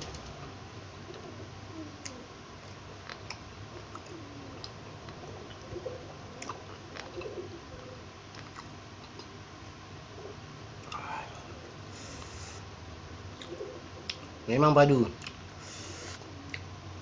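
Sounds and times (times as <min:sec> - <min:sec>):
faint steady hum: 0:00.0 - 0:17.0
man chewing: 0:02.0 - 0:05.6, 0:06.3 - 0:07.4, 0:08.3 - 0:09.4, 0:11.9 - 0:12.6
mouth clicks and smacks: 0:06.4 - 0:07.3, 0:08.3 - 0:09.4.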